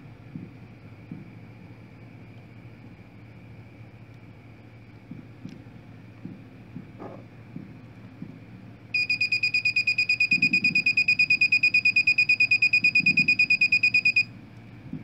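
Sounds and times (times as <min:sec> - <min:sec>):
buzzer pulsing high-pitched beep: 0:09.0 - 0:14.3.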